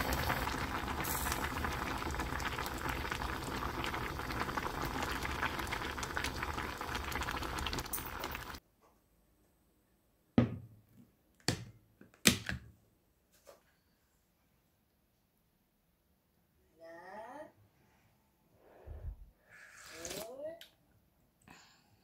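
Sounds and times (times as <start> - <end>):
stew bubbling in a pot: 0.0 - 8.6.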